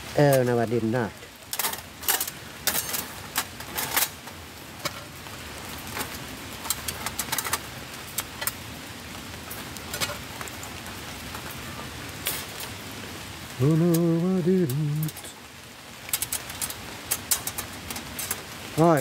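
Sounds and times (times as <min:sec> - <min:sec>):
light rain pattering: 0:00.0 - 0:19.0
metal stove panels clinking: 0:01.5 - 0:05.0, 0:16.1 - 0:18.4.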